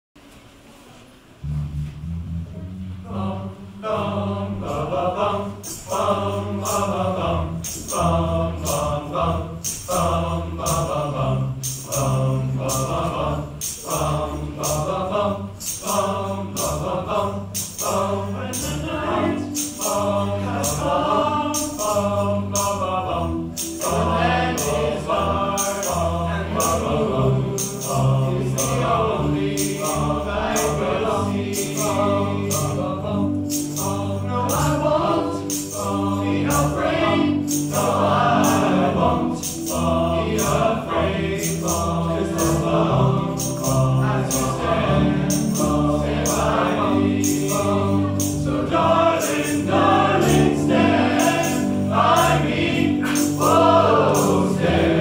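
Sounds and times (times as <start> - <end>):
repeating bass line: 1.4 - 3.2
high percussion hits: 1.4 - 55.0
choir singing in parts: 3.0 - 55.0.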